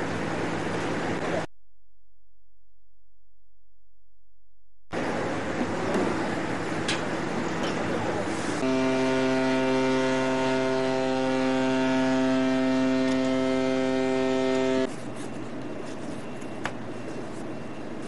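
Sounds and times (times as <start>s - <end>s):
ship's horn blast: 8.6s - 14.9s.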